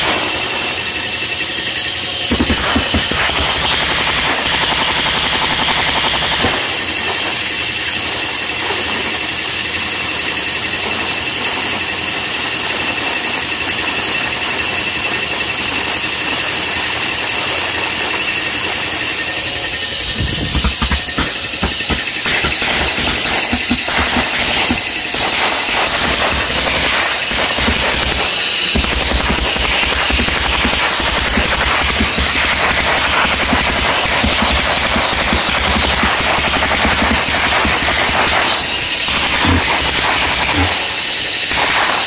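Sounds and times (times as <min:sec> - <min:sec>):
pulse jet engine buzzing: 0:00.0 - 0:07.8, 0:17.7 - 0:42.0
strong hiss: 0:19.2 - 0:42.0.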